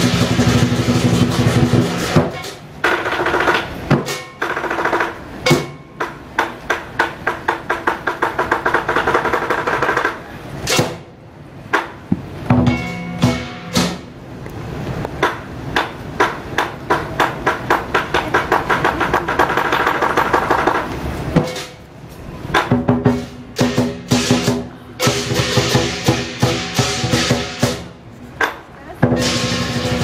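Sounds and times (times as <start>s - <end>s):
cymbals crashing: 0.0s - 2.8s, 5.4s - 6.3s, 12.5s - 14.2s, 22.6s - 28.0s, 29.0s - 30.0s
large drum beaten with sticks: 0.0s - 14.3s, 15.1s - 30.0s
gong ringing: 12.6s - 14.0s.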